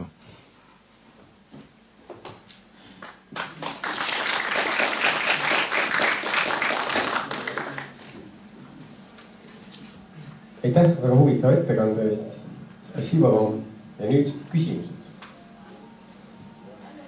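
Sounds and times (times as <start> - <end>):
audience applauding: 3.0 - 8.3.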